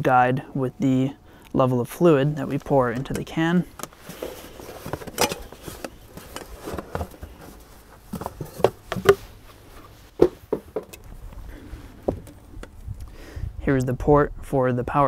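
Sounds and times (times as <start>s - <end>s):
light knocks and bumps: 2.9s - 11.0s
cardboard box rustling: 3.9s - 10.9s.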